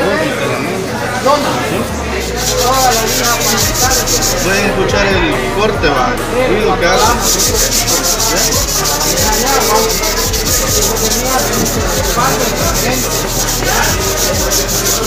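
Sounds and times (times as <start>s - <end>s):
sandpaper rubbing sheet metal: 2.1s - 4.7s, 7.0s - 15.0s.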